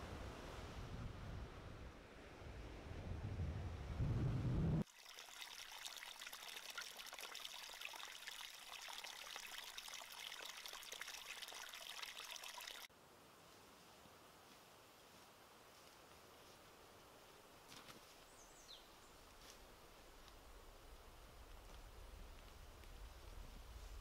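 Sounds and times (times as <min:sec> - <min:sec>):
wind rumble on microphone: 0:00.0 - 0:04.8
stream trickling over stones: 0:04.8 - 0:12.9.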